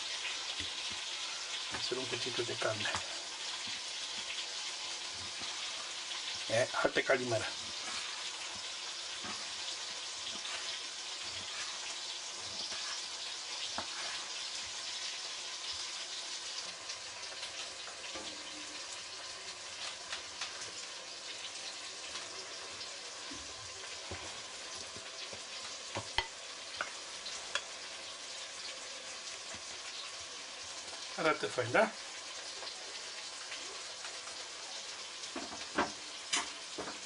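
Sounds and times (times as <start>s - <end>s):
onions sizzling in oil: 0.0s - 37.0s.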